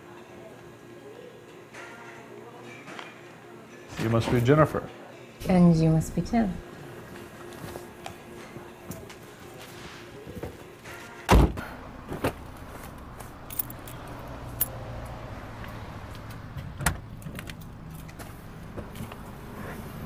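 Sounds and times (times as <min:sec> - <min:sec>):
car door thump: 0:11.3 - 0:12.4.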